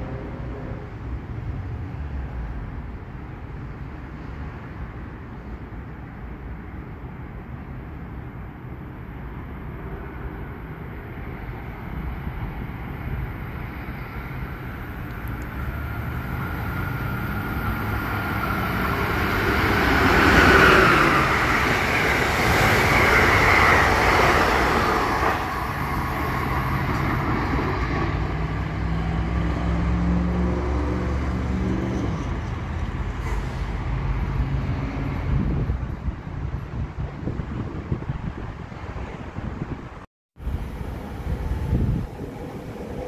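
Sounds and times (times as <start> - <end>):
passenger train passing: 0.0 - 43.0.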